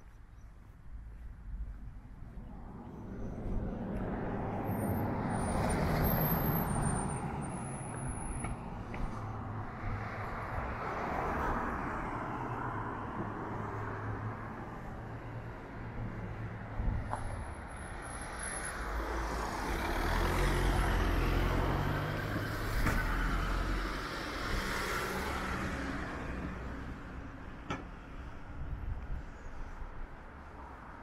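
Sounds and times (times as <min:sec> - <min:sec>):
vehicles passing: 0:00.0 - 0:31.0.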